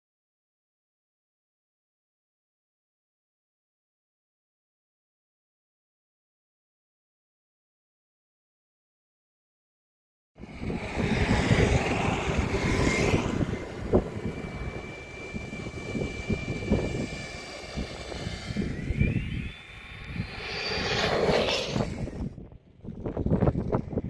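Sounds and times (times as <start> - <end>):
rushing swell: 10.4 - 22.3
electric motor and gearbox whine: 10.4 - 22.4.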